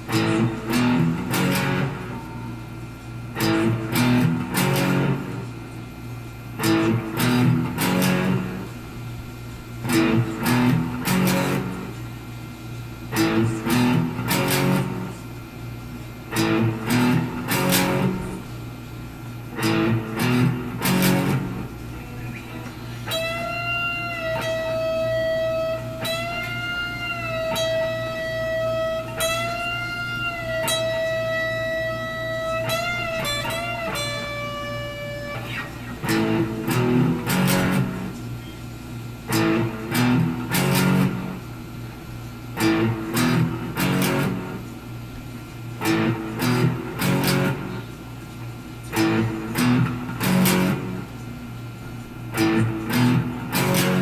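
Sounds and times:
electric guitar long bent note: 0:00.0 - 0:02.6, 0:03.3 - 0:05.5, 0:06.5 - 0:08.9, 0:09.8 - 0:12.1, 0:13.1 - 0:15.3, 0:16.3 - 0:18.6, 0:19.5 - 0:38.4, 0:39.0 - 0:41.7, 0:42.5 - 0:44.7, 0:45.8 - 0:47.8, 0:48.9 - 0:51.1, 0:52.3 - 0:54.0
electric guitar chords: 0:00.0 - 0:54.0.

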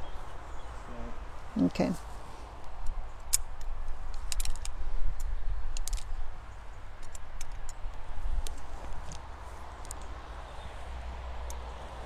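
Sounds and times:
light sharp clicks: 0:07.0 - 0:10.2, 0:11.4 - 0:11.8.

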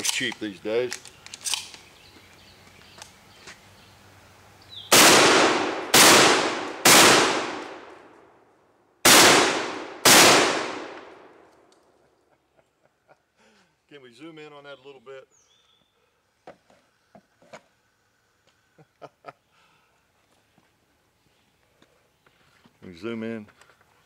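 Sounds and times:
shotgun shots with echo: 0:04.9 - 0:08.1, 0:09.0 - 0:11.3.

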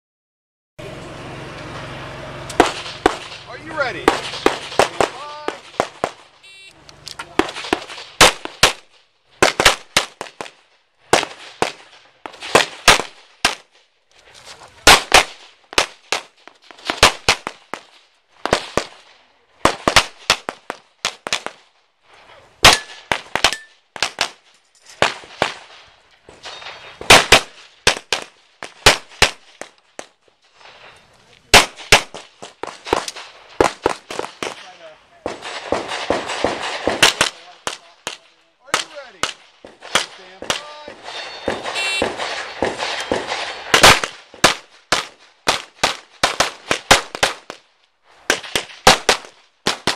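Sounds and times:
handgun shots: 0:22.6 - 0:24.4.

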